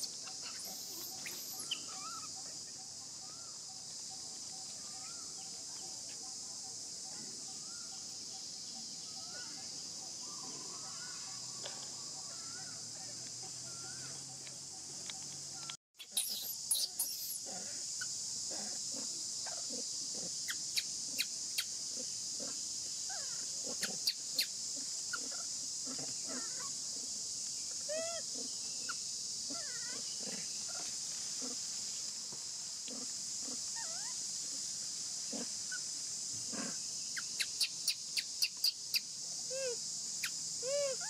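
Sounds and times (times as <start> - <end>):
infant monkeys squeaking: 0.0 - 2.4, 16.0 - 17.6, 23.1 - 24.5
high-pitched insect drone: 0.0 - 26.8.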